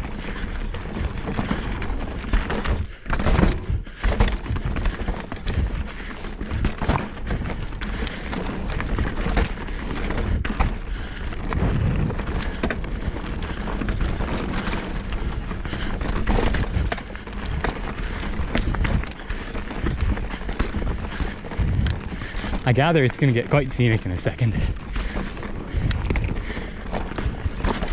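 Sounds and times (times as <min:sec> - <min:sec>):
bike rattling over roots and rocks: 0:00.0 - 0:27.9
bike tyres on dirt: 0:00.0 - 0:27.9
wind rumbling on microphone: 0:10.2 - 0:22.9, 0:23.7 - 0:27.9.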